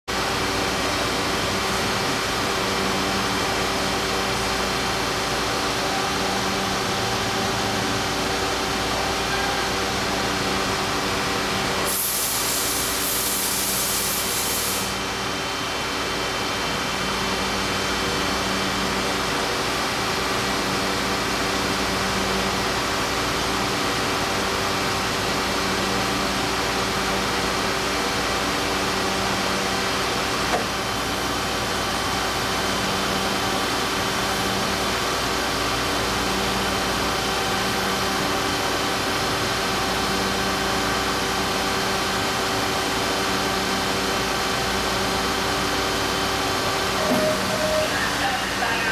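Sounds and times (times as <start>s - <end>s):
machine drone with tones: 46.4s - 48.9s.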